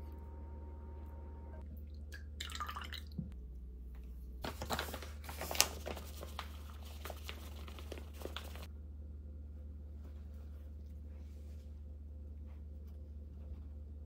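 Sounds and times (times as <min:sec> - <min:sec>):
packet crinkling: 0:04.4 - 0:08.7
packet rustle: 0:04.4 - 0:08.7.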